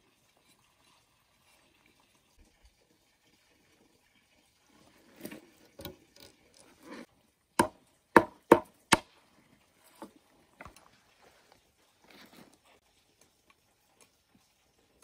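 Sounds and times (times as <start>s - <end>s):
machete chopping bamboo: 7.6s - 9.1s.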